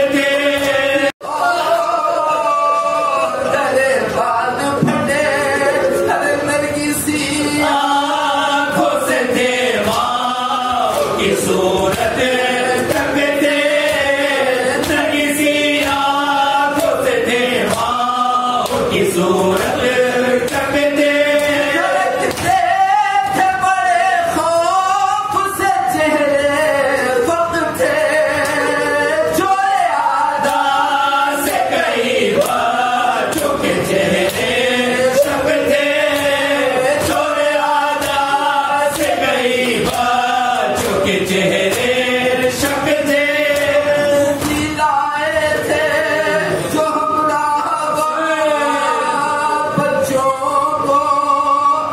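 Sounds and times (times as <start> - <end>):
men chanting in unison: 0.0 - 51.9
sharp slaps: 8.8 - 23.5, 30.4 - 44.9.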